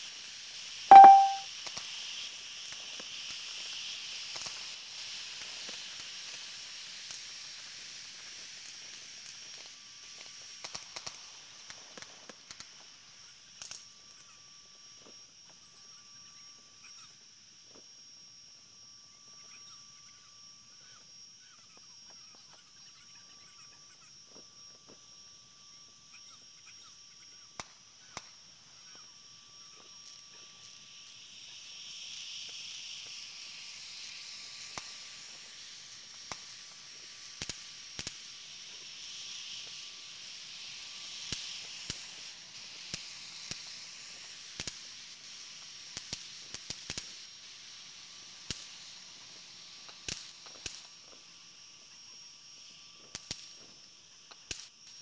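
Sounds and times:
high-pitched hiss: 0.9 - 1.4, 28.0 - 55.0.

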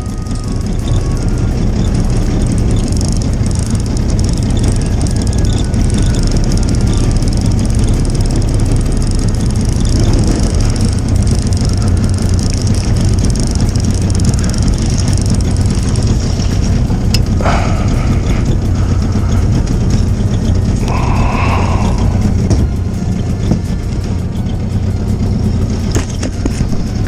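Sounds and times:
outboard motor humming: 0.0 - 27.0.

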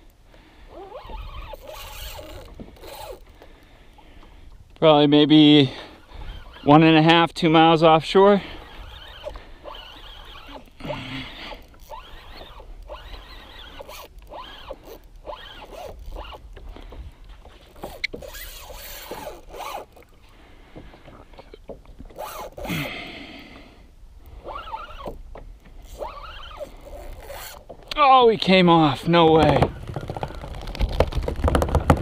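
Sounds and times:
fishing reel whirring: 0.7 - 3.4, 5.8 - 6.9, 8.4 - 16.6, 17.8 - 20.2, 22.1 - 23.1, 24.3 - 25.2, 25.8 - 27.7.

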